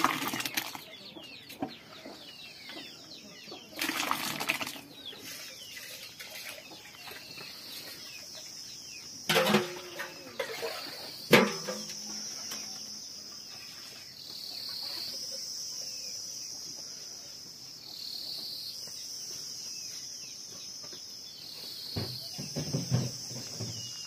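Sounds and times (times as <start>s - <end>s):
insects shrilling: 3.7s - 24.0s
faint bird chirps: 4.7s - 24.0s.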